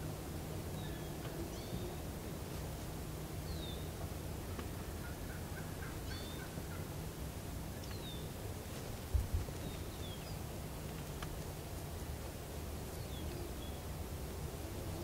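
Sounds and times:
faint songbird chirps: 0.7 - 2.1, 3.4 - 6.9, 7.7 - 8.4, 9.6 - 10.5, 12.9 - 13.9
wild turkey calling: 4.5 - 6.9.

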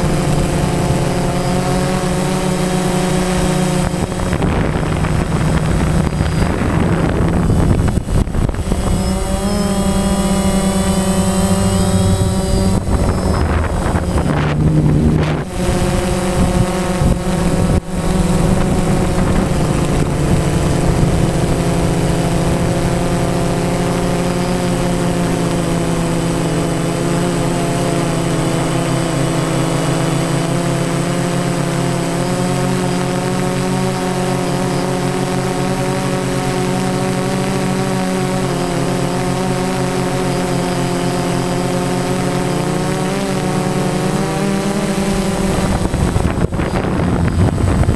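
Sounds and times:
drone motors whining: 0.0 - 47.9
wind buffeting microphone: 2.9 - 26.7, 45.0 - 47.9.

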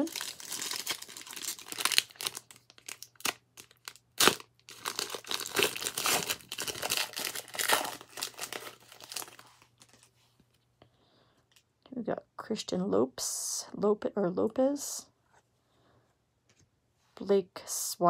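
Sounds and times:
foil wrapper crinkling: 0.0 - 10.1
foil wrapper snapping: 0.1 - 9.4.

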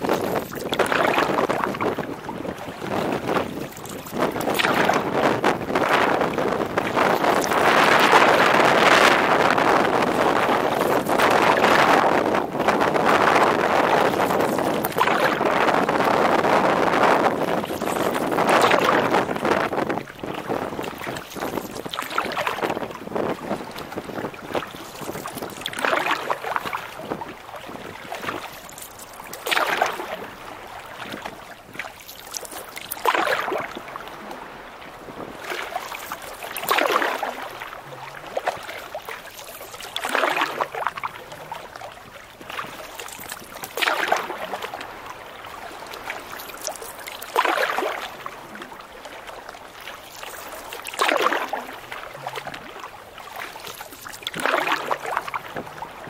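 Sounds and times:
canoe paddle splashing: 0.0 - 56.0
wash of water: 24.5 - 56.0.

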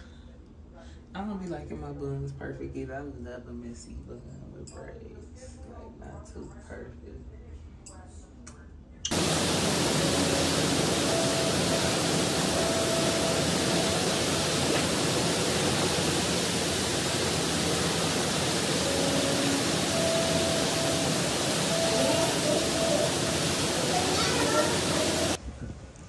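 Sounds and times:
loud steady rushing noise: 9.1 - 25.4.

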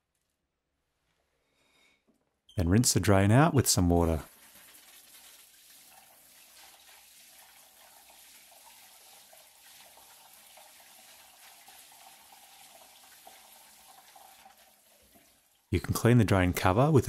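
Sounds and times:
water running down a shower drain: 4.0 - 15.7.

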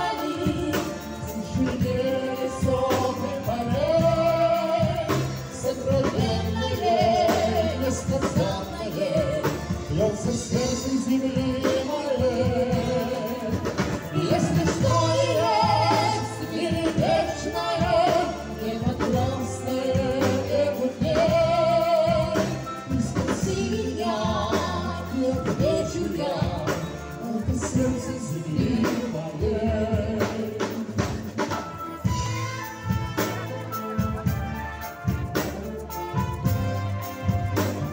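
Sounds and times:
drums: 0.0 - 37.9
keyboard: 0.0 - 37.9
man singing into a microphone: 5.7 - 16.6, 18.9 - 31.0.

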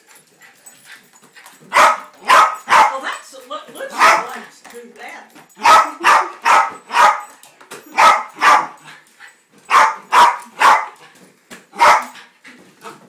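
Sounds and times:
dog barking: 1.7 - 3.0, 3.9 - 4.4, 5.6 - 8.8, 9.7 - 11.0, 11.8 - 12.2.

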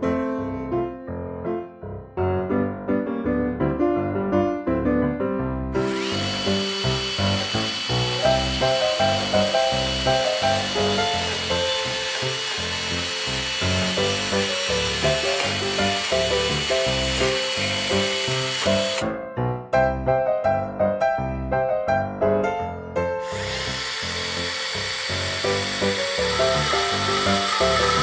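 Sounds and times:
small chainsaw cutting wood: 5.8 - 19.1, 23.2 - 28.0.

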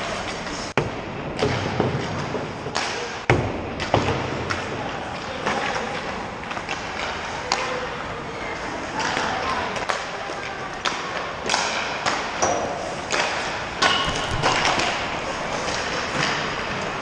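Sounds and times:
pucks and sticks striking: 0.3 - 4.8, 10.8 - 17.0.

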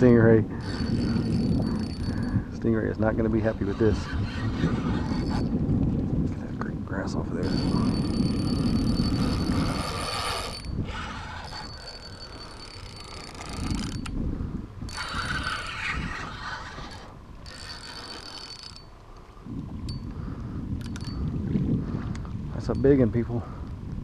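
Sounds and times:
fishing reel whirring: 0.6 - 2.4, 3.6 - 5.5, 7.4 - 14.2, 14.9 - 19.0.

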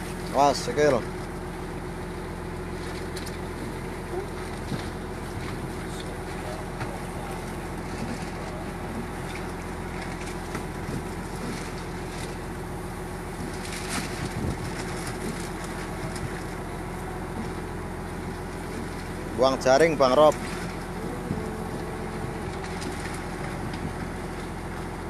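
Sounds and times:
boat engine humming: 0.0 - 25.0.

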